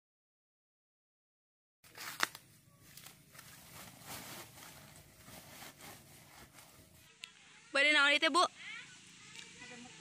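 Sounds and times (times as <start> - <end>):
leafy plants rustling: 1.9 - 7.1.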